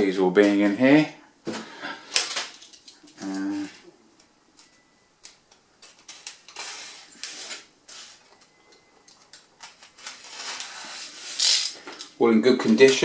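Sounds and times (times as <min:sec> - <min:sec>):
craft knife cutting packing tape: 0:09.8 - 0:11.8.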